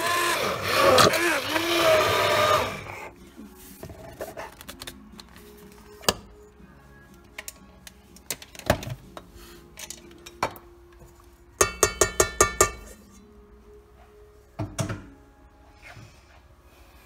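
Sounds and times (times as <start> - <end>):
metal blender shaft knocking on pot: 11.6 - 12.9.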